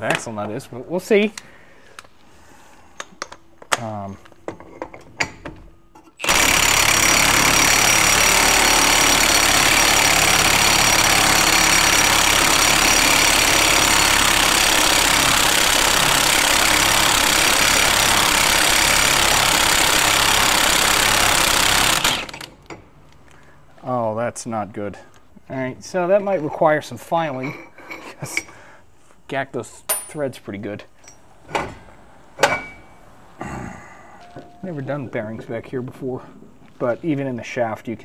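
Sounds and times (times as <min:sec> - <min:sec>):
impact wrench hammering: 0:06.2 - 0:22.8.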